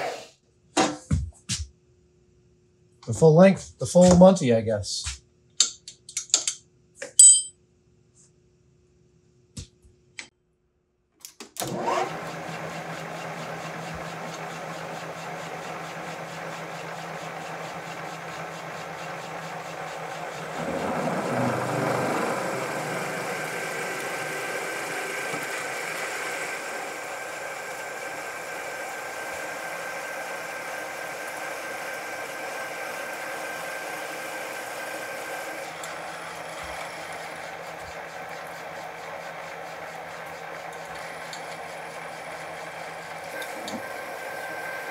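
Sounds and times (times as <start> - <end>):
metal lathe running: 11.6 - 44.9
drill boring into steel: 15.5 - 44.9.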